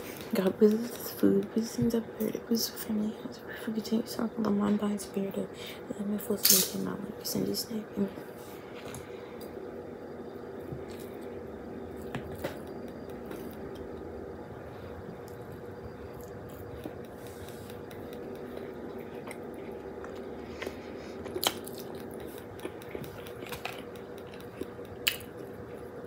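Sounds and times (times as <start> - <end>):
steady hum: 0.0 - 26.0
person chewing and eating: 10.5 - 14.1, 14.7 - 26.0.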